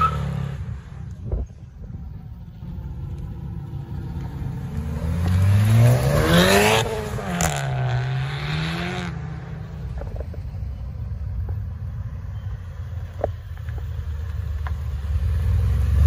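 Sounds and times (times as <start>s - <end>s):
car accelerating past: 4.2s - 9.7s.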